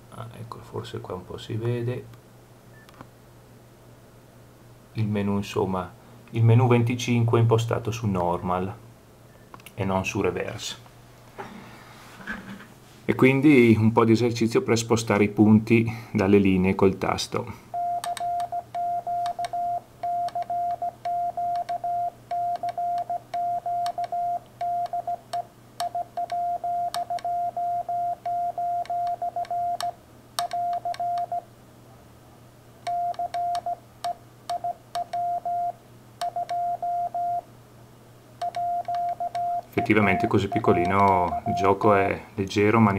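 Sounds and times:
morse code beeps: 0:17.8 - 0:25.2, 0:25.8 - 0:29.9, 0:30.5 - 0:31.4, 0:32.9 - 0:33.8, 0:34.5 - 0:37.4, 0:38.4 - 0:41.8.

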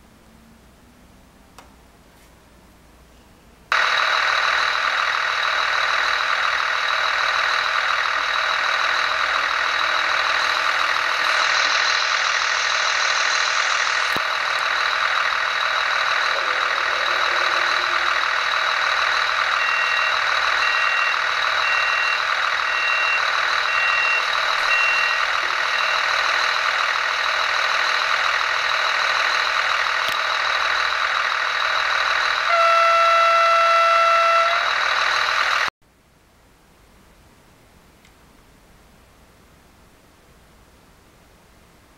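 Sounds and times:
diesel engine idling: 0:03.7 - 0:35.7
beeps: 0:19.5 - 0:26.1
train horn blast: 0:32.4 - 0:34.8.

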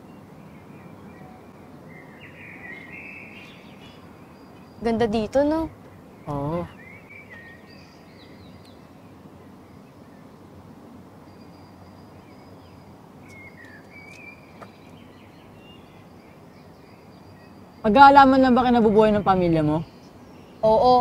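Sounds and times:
bird chirps and calls: 0:00.0 - 0:10.3, 0:11.2 - 0:21.0
outdoor background noise: 0:00.0 - 0:21.0.

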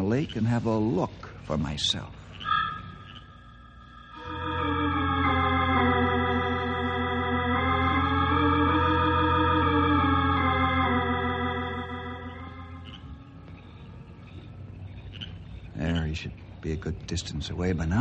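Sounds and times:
organ music with held chords: 0:04.1 - 0:13.6.

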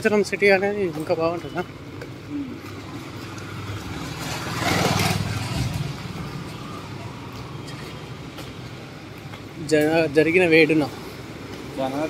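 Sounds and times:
motor vehicle passing by: 0:02.4 - 0:08.9.

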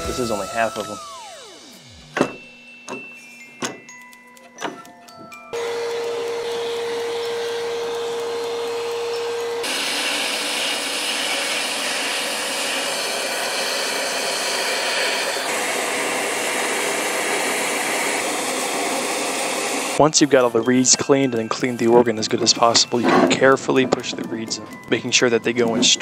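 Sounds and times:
vacuum cleaner running: 0:00.0 - 0:03.8, 0:05.5 - 0:20.0.

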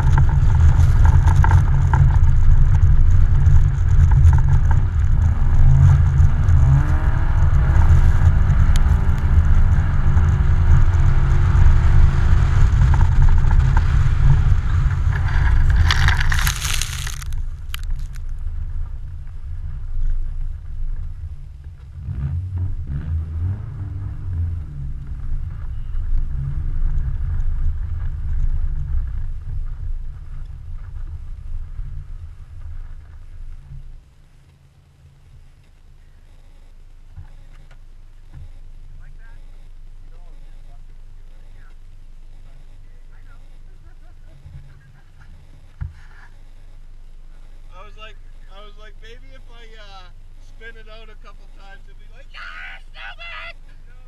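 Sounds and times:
car engine revving: 0:00.0 - 0:19.8, 0:21.9 - 0:33.8
wind and tyre rumble: 0:00.0 - 0:52.7.

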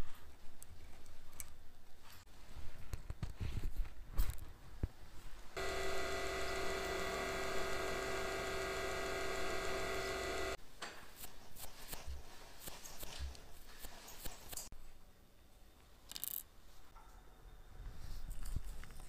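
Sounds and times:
lathe motor whining: 0:05.6 - 0:10.6.

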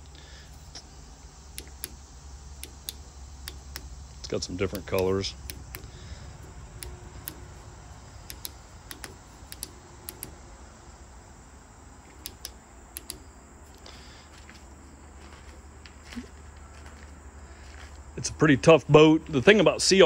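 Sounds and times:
push-button switch clicking: 0:01.6 - 0:02.0, 0:02.6 - 0:04.0, 0:04.6 - 0:07.6, 0:08.2 - 0:10.4, 0:12.2 - 0:13.2.

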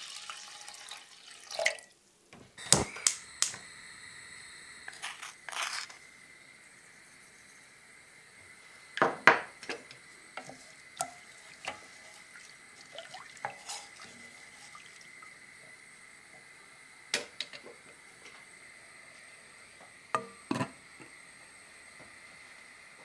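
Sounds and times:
water swishing: 0:10.6 - 0:15.1.

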